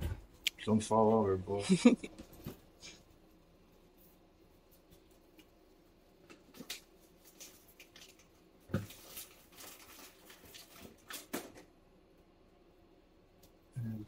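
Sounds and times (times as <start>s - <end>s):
knocks and rustles: 6.2s - 11.7s.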